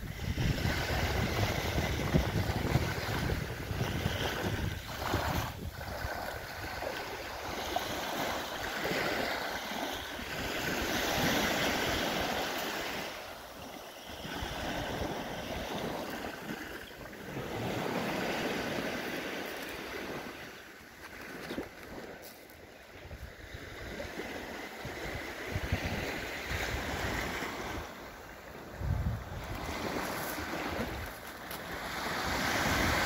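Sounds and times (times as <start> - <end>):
wind rumble on microphone: 0.0 - 13.2, 21.1 - 33.0
waves washing on pebble shore: 0.0 - 33.0.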